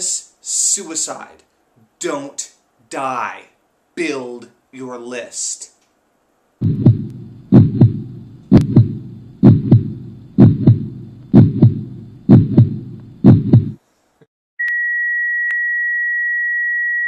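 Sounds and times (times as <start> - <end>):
heart monitor flatline tone: 6.6 - 13.8
heartbeat double thump: 6.6 - 13.8.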